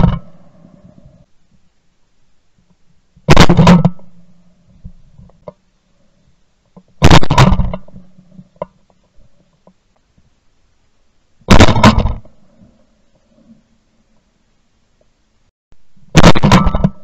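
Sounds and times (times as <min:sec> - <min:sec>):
shotgun blasts: 0:03.3 - 0:04.0, 0:07.0 - 0:07.8, 0:11.5 - 0:12.3, 0:16.1 - 0:17.0.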